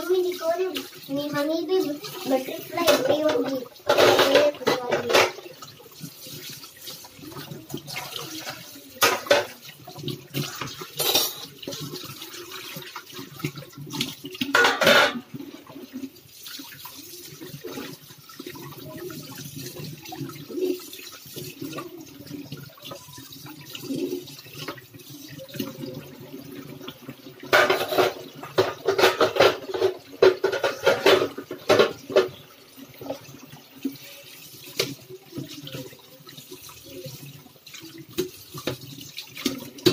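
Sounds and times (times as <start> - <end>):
tap water running and splashing: 0.0 - 39.9
steel dishes clattering: 2.8 - 5.5, 8.2 - 9.6, 11.0 - 11.6, 14.5 - 15.3, 27.5 - 32.4.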